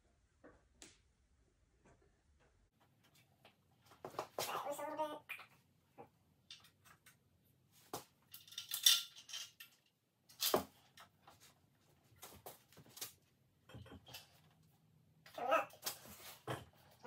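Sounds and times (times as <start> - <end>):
metal tools clinking and knocking: 6.5 - 7.1, 8.2 - 11.1.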